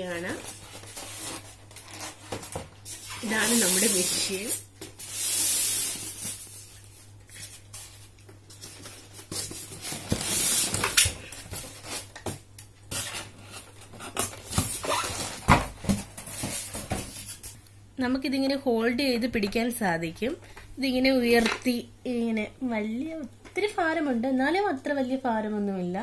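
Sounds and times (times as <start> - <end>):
polystyrene scraping on plastic: 0.0 - 12.2, 12.9 - 17.6.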